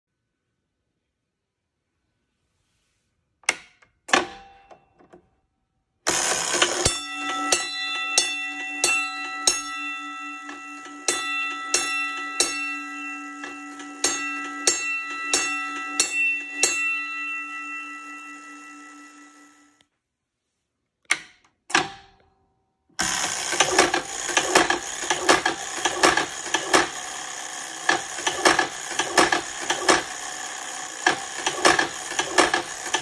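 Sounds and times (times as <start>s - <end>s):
clicks: 3.4s - 5.4s, 21.0s - 22.3s
fire alarm gong striking: 6.1s - 19.7s
mechanism whirring: 6.1s - 19.8s, 23.0s - 33.0s.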